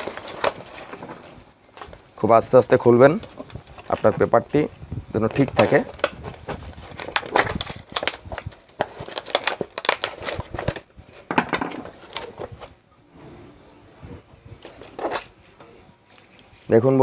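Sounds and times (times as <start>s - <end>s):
speaker cone cracking and scraping: 5.3s - 10.9s.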